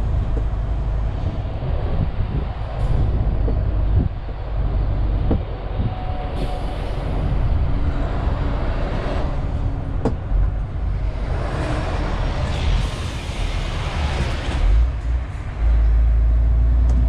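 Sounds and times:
truck cab engine and road rumble: 0.0s - 17.0s.

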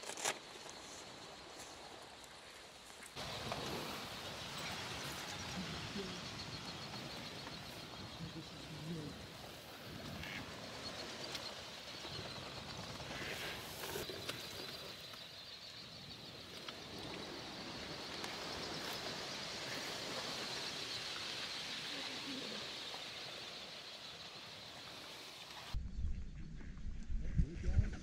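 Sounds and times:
rush of beating wings: 3.2s - 15.2s, 16.2s - 25.8s
duck calls: 10.1s - 10.7s.

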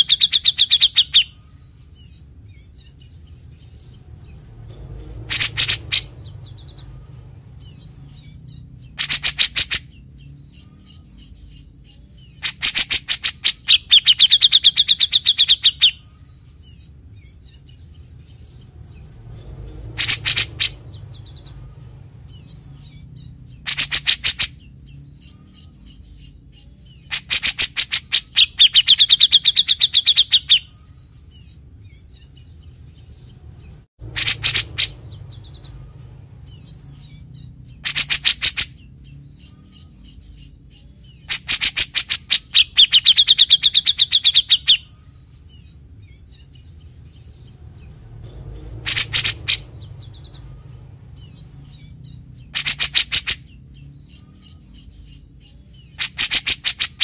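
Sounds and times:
bird rattling call: 20.0s - 20.8s, 34.0s - 35.0s.

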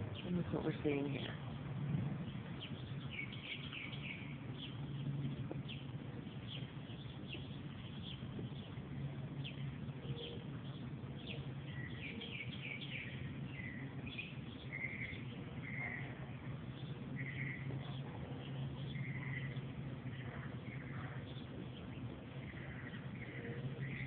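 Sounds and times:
small birds chirping: 0.0s - 24.0s
steady low hum: 0.0s - 24.0s.

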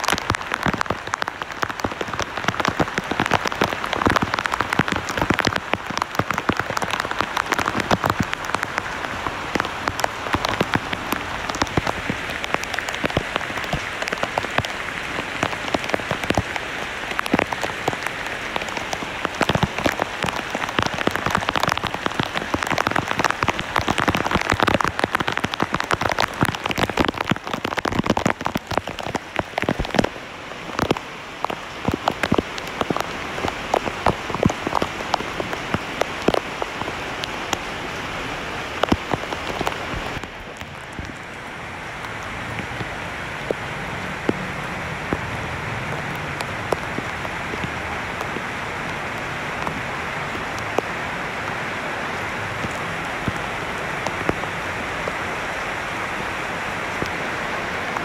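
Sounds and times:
heavy rain on leaves: 0.0s - 58.0s.

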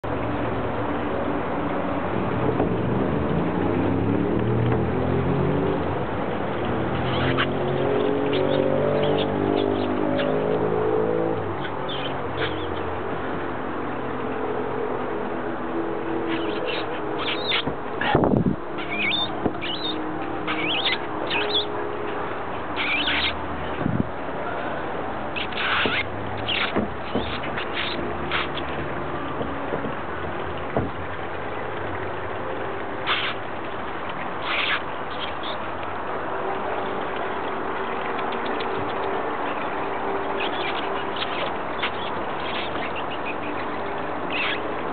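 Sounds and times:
engine-like hum: 0.0s - 44.9s.

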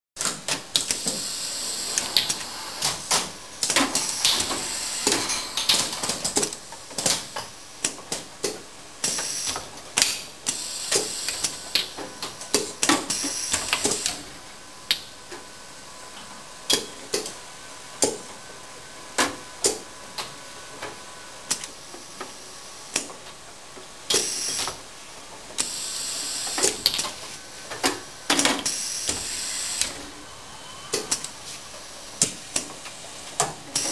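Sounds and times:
air hisses: 0.9s - 5.8s.

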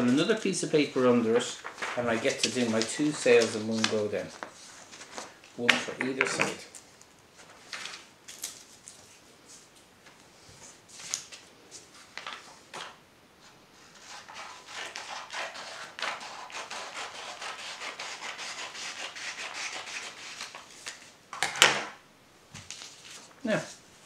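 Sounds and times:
paper rustling: 0.0s - 6.8s, 7.4s - 9.7s, 20.0s - 21.2s, 22.6s - 23.8s.

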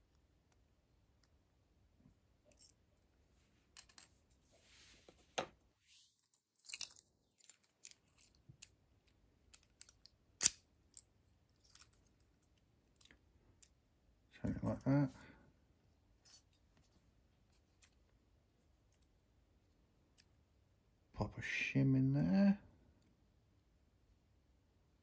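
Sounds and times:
metallic lock and key clicks: 9.6s - 12.2s.

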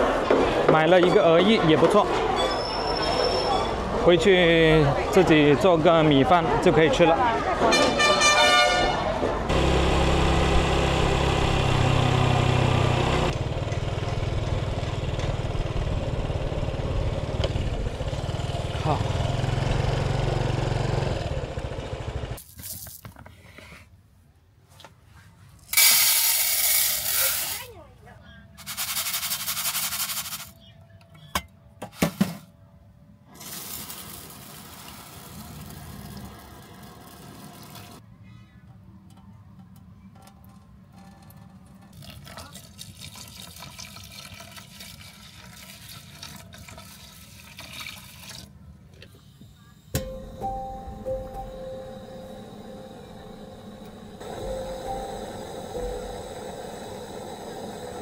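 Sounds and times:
motorcycle engine running: 9.5s - 22.4s
water pouring into metal tin: 42.0s - 48.5s.

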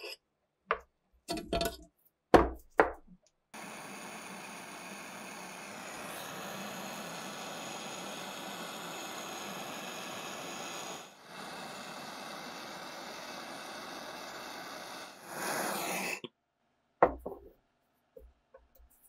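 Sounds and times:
gas torch flame hissing: 3.6s - 16.3s.

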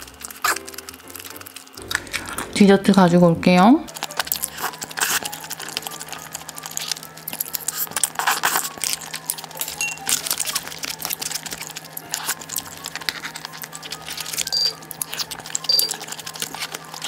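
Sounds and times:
packaging rustling and crinkling: 3.9s - 17.0s.

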